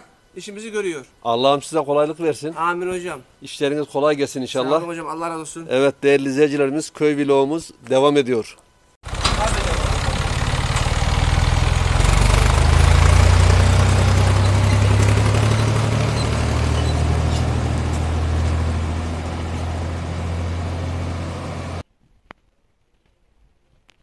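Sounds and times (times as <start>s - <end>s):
tractor engine running: 9.0s - 21.8s.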